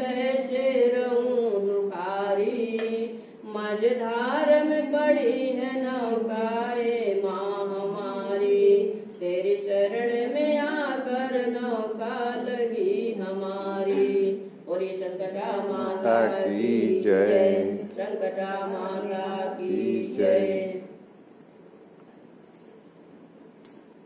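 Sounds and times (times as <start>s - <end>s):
voices chanting a prayer: 12.8s - 21.0s.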